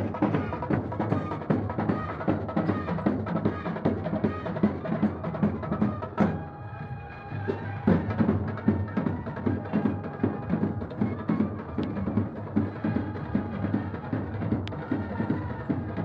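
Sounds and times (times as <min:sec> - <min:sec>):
fast drumming: 0:00.0 - 0:06.4, 0:07.5 - 0:16.0.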